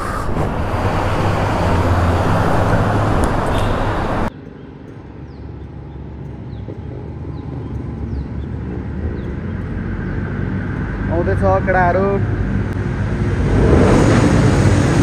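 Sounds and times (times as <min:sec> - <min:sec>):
wind noise: 0:00.0 - 0:04.3.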